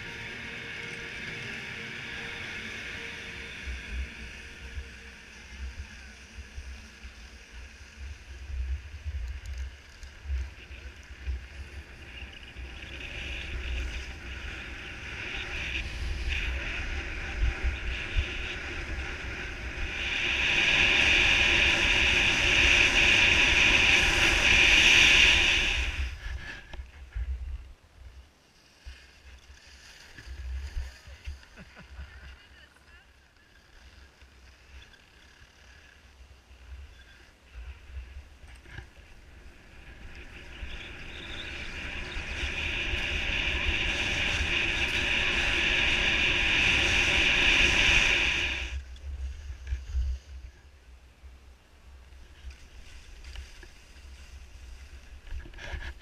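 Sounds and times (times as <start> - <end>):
wind on microphone: 0.0 - 27.7, 36.8 - 51.4
skis scraping over snow: 0.0 - 56.0
wind buffeting microphone: 37.8 - 50.5.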